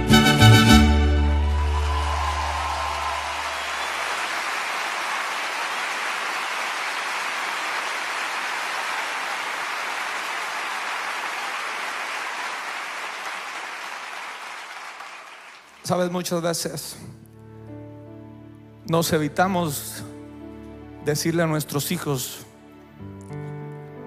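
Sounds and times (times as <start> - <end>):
audience applauding: 1.1 - 16.3.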